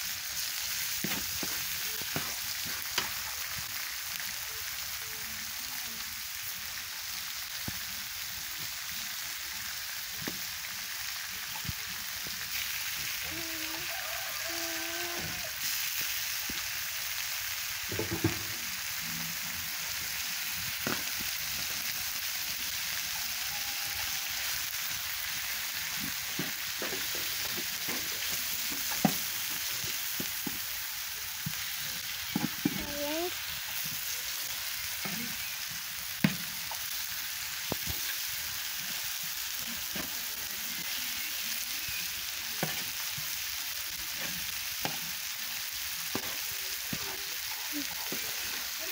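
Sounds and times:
meat sizzling on griddle: 0.0s - 48.9s.

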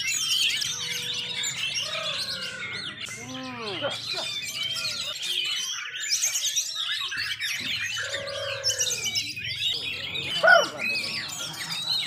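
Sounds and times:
songbirds singing: 0.0s - 12.0s.

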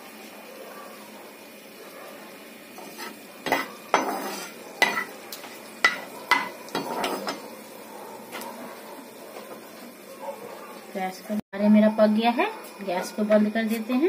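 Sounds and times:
spices sizzling in hot oil: 0.0s - 14.0s
spoon scraping and clinking pot: 2.8s - 5.2s, 5.8s - 7.4s.

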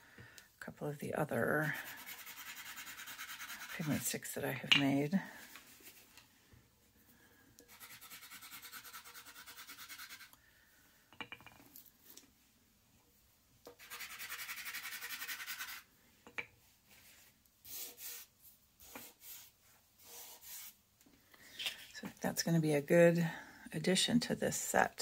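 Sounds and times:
pastels scribbling on paper: 1.8s - 4.1s, 7.7s - 10.3s, 13.8s - 15.8s.

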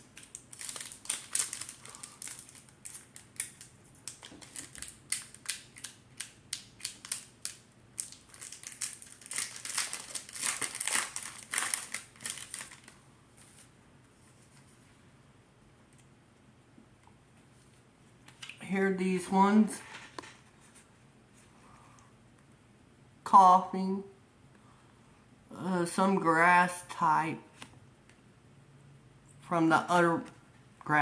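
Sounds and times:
foil wrapper crinkling: 0.0s - 13.0s.

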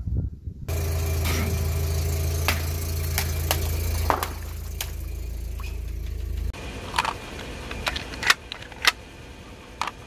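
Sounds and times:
car engine idling: 0.7s - 10.0s
cracks and snaps under tyre: 6.8s - 9.0s.

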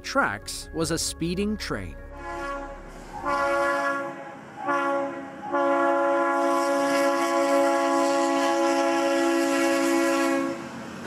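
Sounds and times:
locomotive air horn blasts: 2.1s - 10.7s.

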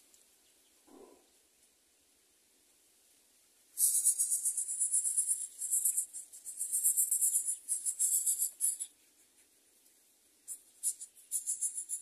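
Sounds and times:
nestlings begging chatter: 3.8s - 9.0s, 10.5s - 12.0s.

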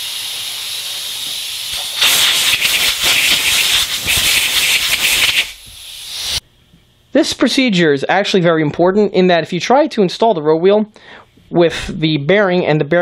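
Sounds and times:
compressed air hissing from blowgun: 0.0s - 6.4s.

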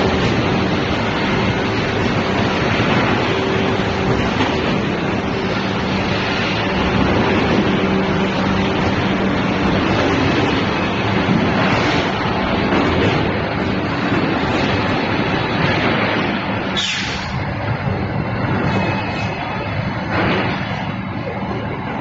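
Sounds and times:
machinery hiss: 16.7s - 17.4s.

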